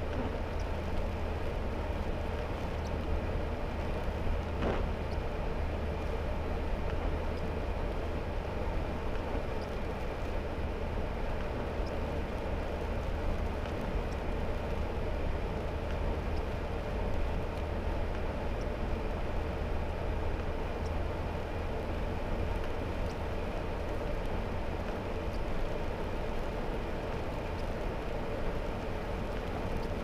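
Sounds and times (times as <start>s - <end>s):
engine and tyre drone: 0.0s - 30.0s
faint ticks: 20.3s - 21.0s, 22.5s - 23.2s.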